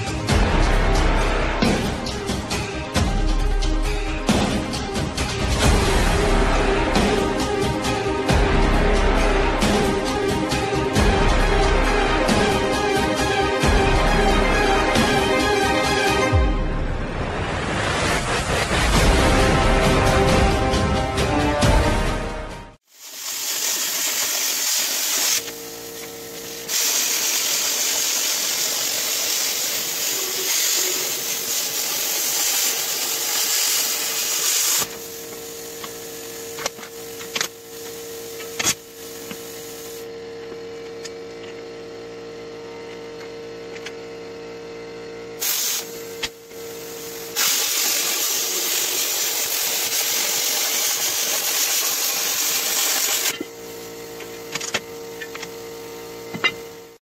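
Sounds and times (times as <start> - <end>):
plasma cutter hissing: 22.8 - 40.1, 45.4 - 53.8
steady hum: 24.8 - 57.0.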